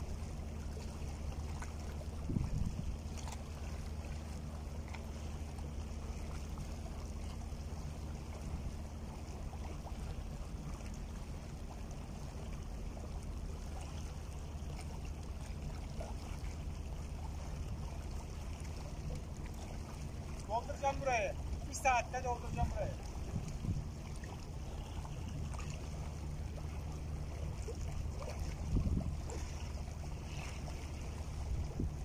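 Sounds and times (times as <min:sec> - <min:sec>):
waves lapping against rocks: 0:00.0 - 0:32.0
low rumble: 0:17.5 - 0:32.0.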